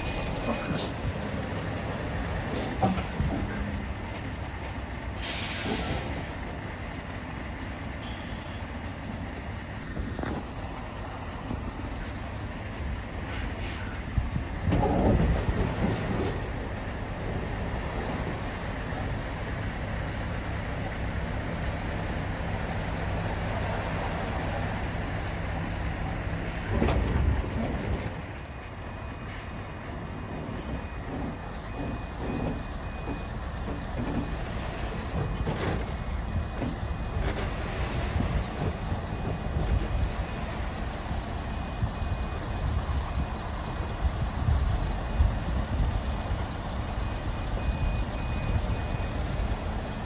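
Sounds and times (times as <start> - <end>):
truck diesel engine running: 0.0 - 50.0
air brake hiss: 5.2 - 6.3, 13.2 - 14.0
reversing alarm beeping: 8.0 - 8.8, 25.6 - 50.0.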